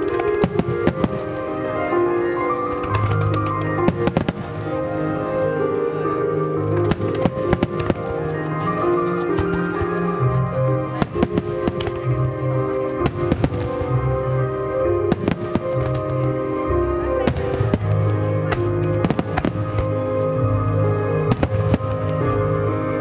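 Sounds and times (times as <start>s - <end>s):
fireworks bangs and cracks: 0.0s - 1.6s, 2.7s - 4.8s, 6.8s - 8.4s, 10.9s - 12.2s, 13.0s - 14.2s, 15.1s - 16.4s, 17.2s - 20.0s, 21.3s - 22.2s
music with held notes: 0.0s - 23.0s.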